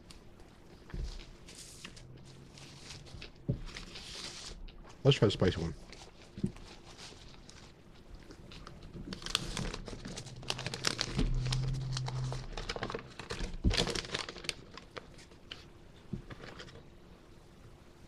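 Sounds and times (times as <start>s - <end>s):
paper wrapper crinkling: 5.4s - 15.7s, 16.3s - 16.9s.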